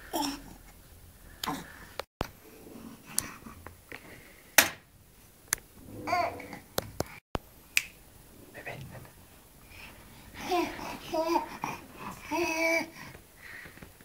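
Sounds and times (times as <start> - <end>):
baby babbling: 6.1 - 6.6, 10.4 - 13.0.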